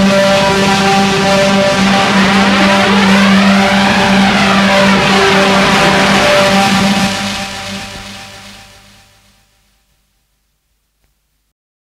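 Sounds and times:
rising noise sweep: 0.0 - 9.3
low synth drone: 0.0 - 9.7.

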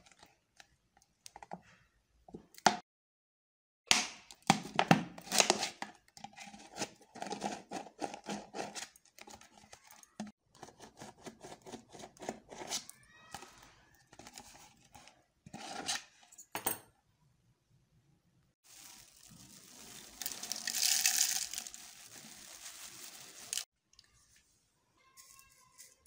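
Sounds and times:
plastic bottle crinkling: 18.6 - 23.7.

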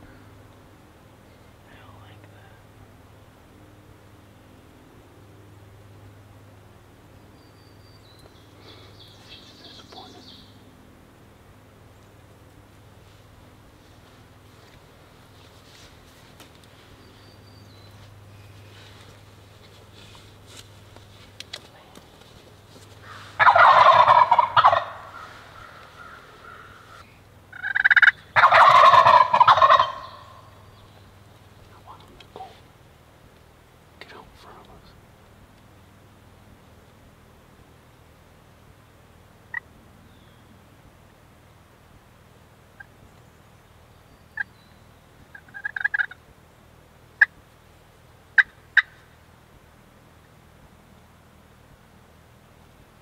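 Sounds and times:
turkeys gobbling: 23.0 - 30.6, 45.3 - 46.2, 47.2 - 47.4, 48.4 - 49.1.

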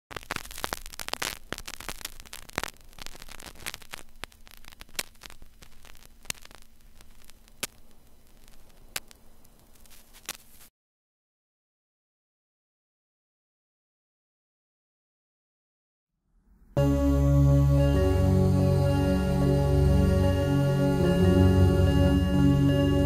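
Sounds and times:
crackling static with clicks: 0.0 - 10.7
faint steady hum: 0.2 - 10.7, 16.5 - 23.0.

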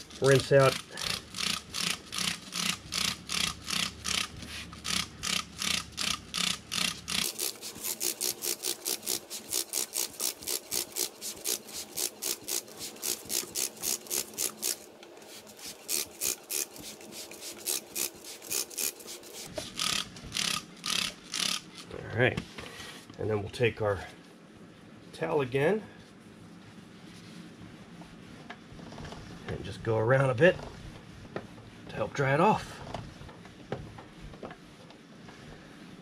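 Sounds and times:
spray bottle squirting: 4.9 - 21.6.

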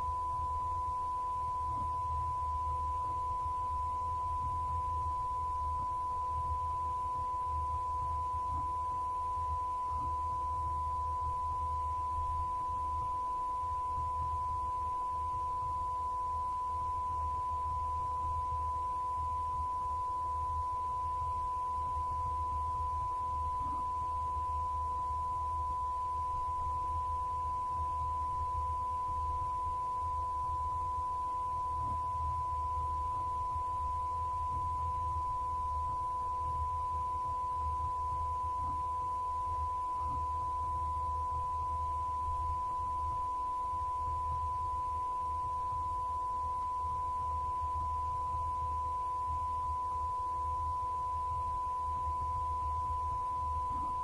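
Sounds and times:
electronic test tone: 0.0 - 54.0
faint low hum: 0.0 - 54.0.

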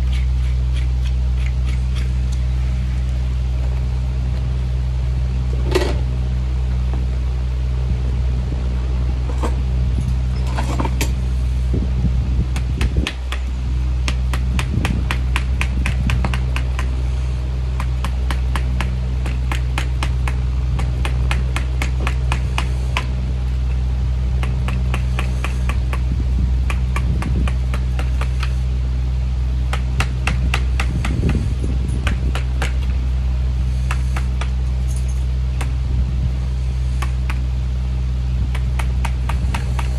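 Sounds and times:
steady low hum: 0.0 - 39.9
hammer tapping nails into hoof: 17.8 - 23.1, 26.7 - 28.6, 29.7 - 31.4.

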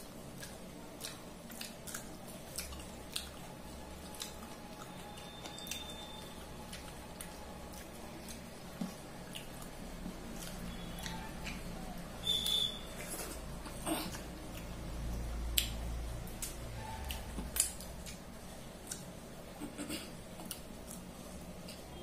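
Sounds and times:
chewing: 0.1 - 21.8
high ringing tone: 4.9 - 6.4.

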